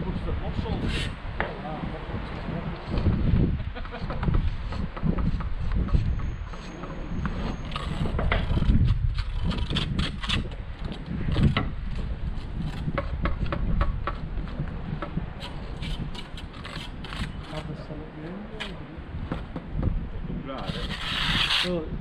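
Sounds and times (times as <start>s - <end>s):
clicks knocks and scrapes: 4.1s - 17.6s.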